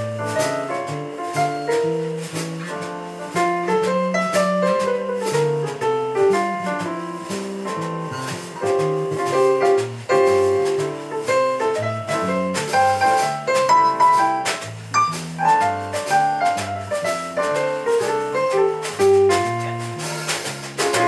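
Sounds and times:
drum kit cymbals and drums: 0.0s - 21.0s
electric bass line: 13.5s - 17.0s.

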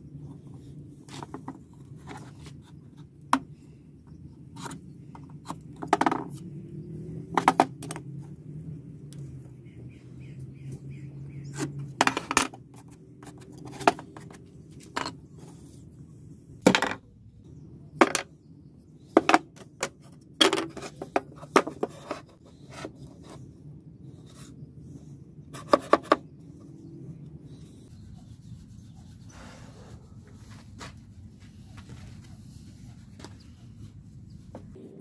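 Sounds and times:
wooden blocks knocking: 7.3s - 8.0s, 16.7s - 17.0s.

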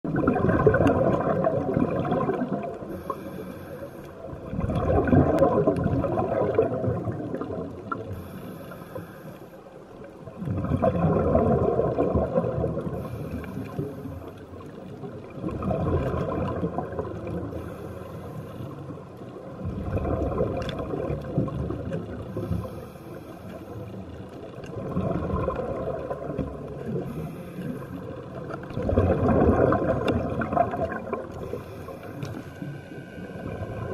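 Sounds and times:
gurgle of exhaled bubbles: 0.0s - 3.3s, 4.2s - 8.6s, 10.2s - 17.8s, 18.7s - 33.9s
regulator inhale hiss: 2.8s - 4.3s, 8.1s - 9.8s, 12.9s - 14.4s, 17.5s - 19.0s, 22.3s - 24.0s, 26.9s - 28.3s, 31.4s - 33.9s.

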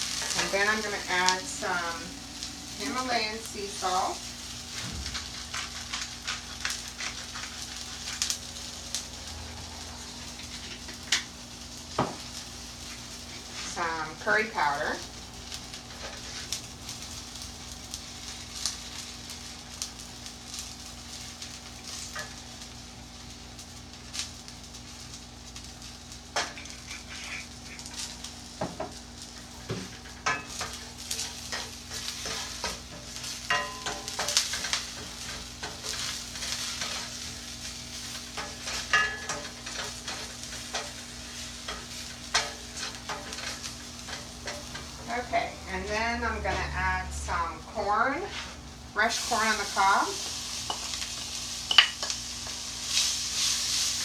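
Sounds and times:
vegetables sizzling in oil: 0.0s - 54.0s
wooden spoon scraping a pan: 2.8s - 8.4s, 26.4s - 28.2s, 28.8s - 54.0s.

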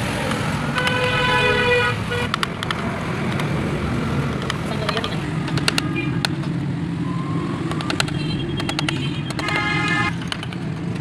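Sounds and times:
street traffic rumble: 0.0s - 11.0s
car horn: 0.7s - 2.4s, 8.1s - 10.1s.

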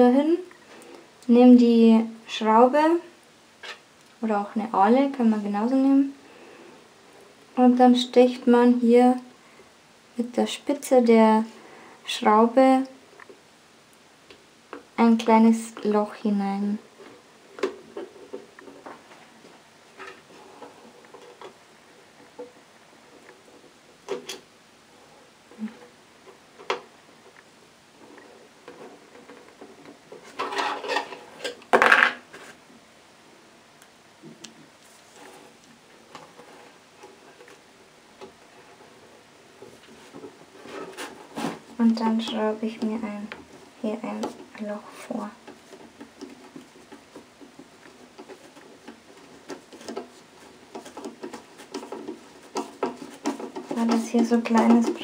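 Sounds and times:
clicks and scrapes of metal on wood: 28.0s - 32.5s, 39.6s - 55.0s.

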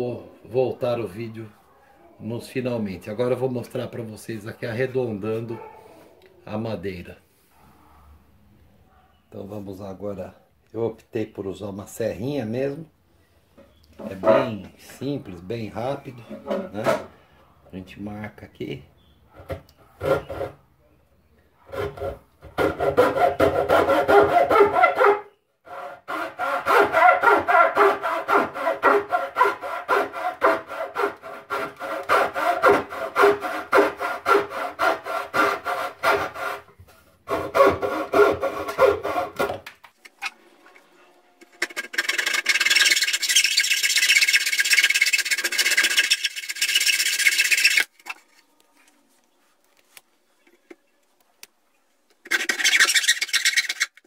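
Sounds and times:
hacksaw cutting wood: 20.0s - 20.6s, 21.7s - 36.7s, 37.3s - 39.6s, 41.5s - 47.9s, 52.2s - 54.0s
hissy scraping: 40.0s - 49.1s, 52.2s - 54.0s.

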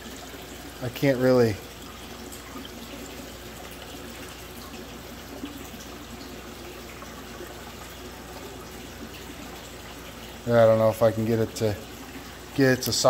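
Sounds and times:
water trickling through drain pipes: 0.0s - 13.0s.

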